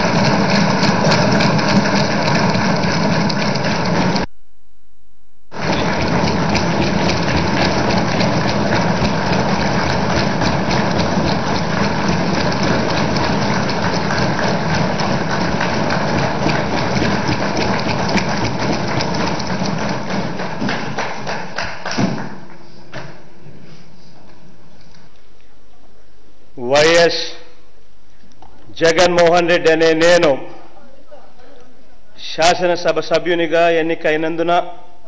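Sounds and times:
desk-thumping and clapping: 5.6 - 23.2.

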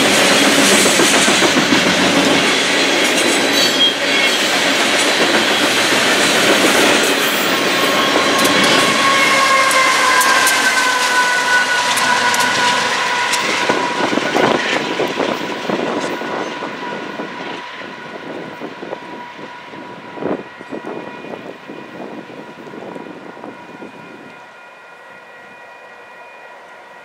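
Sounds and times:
train clank: 0.0 - 17.6
train wheels rumbling and rattling: 0.0 - 24.3
crossing signal ringing: 7.0 - 15.0.

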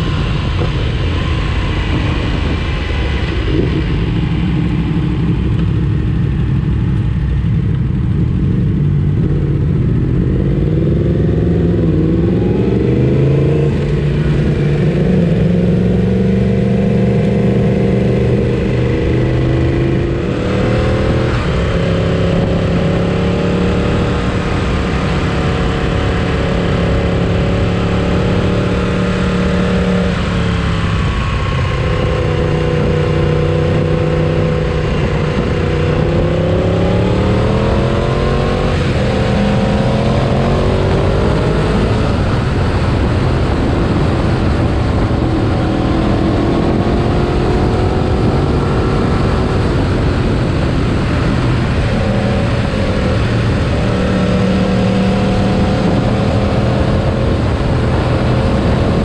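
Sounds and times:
motorcycle engine accelerating: 0.0 - 59.0
wind noise: 0.0 - 59.0.

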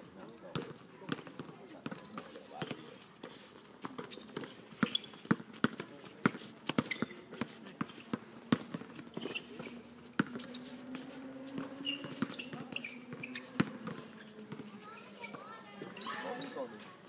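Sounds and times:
basketball bouncing on hard court: 0.5 - 2.8, 3.9 - 7.5, 10.2 - 10.4, 11.5 - 14.6.

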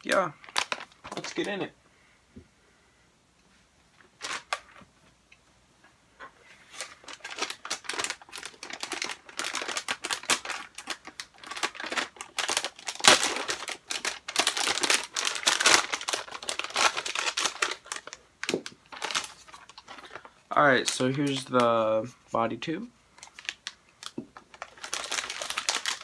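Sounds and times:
plastic bag crinkling: 0.0 - 1.7, 4.1 - 4.9, 6.4 - 21.8, 23.2 - 26.0.

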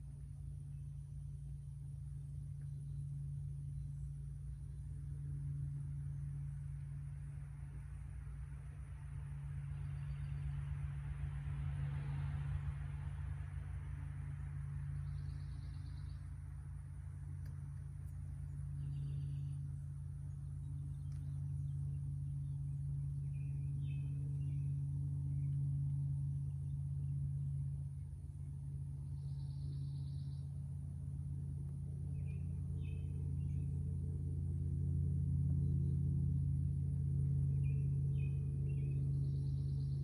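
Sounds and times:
steady low hum: 0.0 - 40.0
bird chirps: 14.9 - 16.4, 18.0 - 25.6, 29.0 - 30.5.

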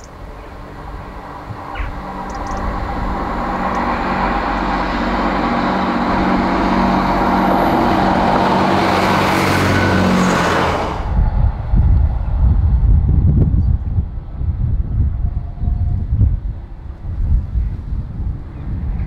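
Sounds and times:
wheels on rails: 0.0 - 13.2
train engine hum: 0.0 - 19.0.

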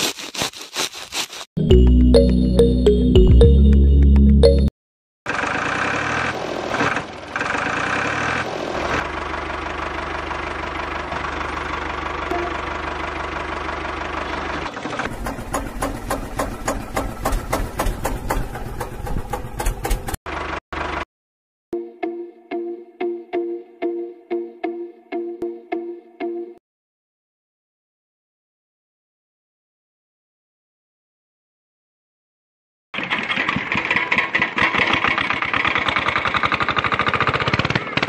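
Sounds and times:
tractor engine chugging: 9.0 - 21.0, 33.0 - 38.0.

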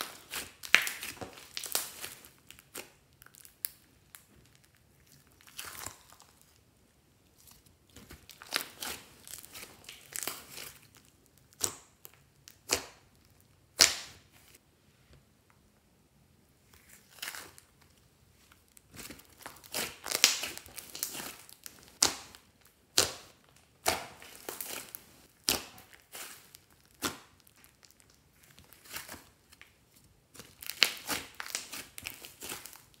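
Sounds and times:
slime popping and crackling: 0.0 - 6.5, 7.9 - 14.2, 18.7 - 33.0.

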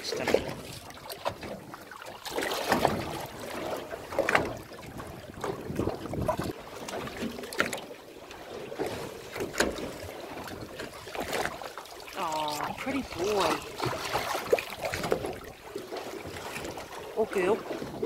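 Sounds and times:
water slapping against boat: 0.0 - 18.0
wind on microphone: 4.7 - 6.6.

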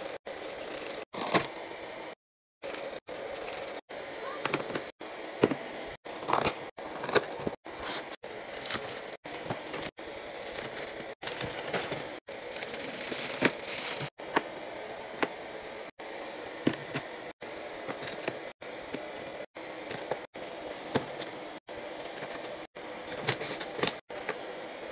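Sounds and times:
plastic wrappers crinkling: 0.0 - 1.4, 2.6 - 3.8, 6.3 - 14.1.

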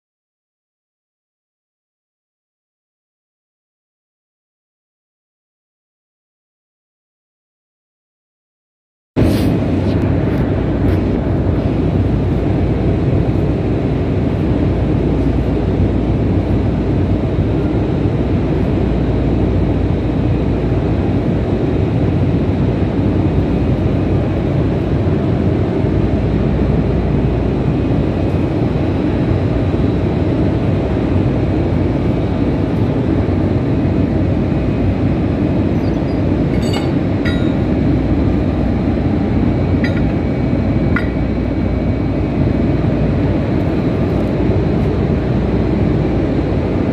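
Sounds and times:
loud machinery rumble: 9.2 - 46.9
light metallic clinks: 36.5 - 37.7.

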